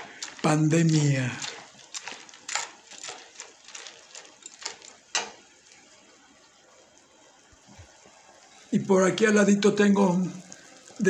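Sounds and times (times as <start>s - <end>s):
spoon scraping seeds in pan: 0.0s - 6.0s.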